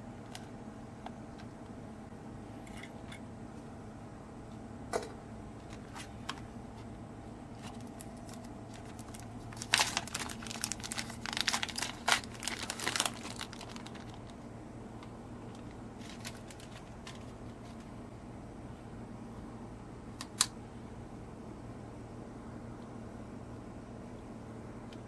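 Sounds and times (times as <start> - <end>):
plastic packet crinkling and tearing: 7.6 - 14.4, 15.5 - 17.3.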